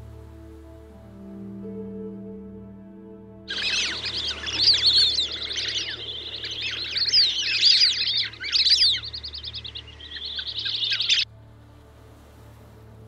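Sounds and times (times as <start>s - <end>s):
ducks whistling: 3.5s - 11.2s.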